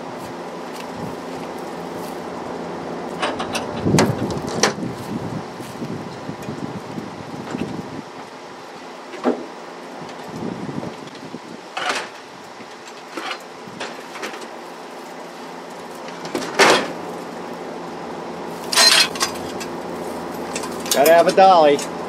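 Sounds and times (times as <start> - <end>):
hand truck bumping metal: 3.1 - 4.8, 18.7 - 19.8.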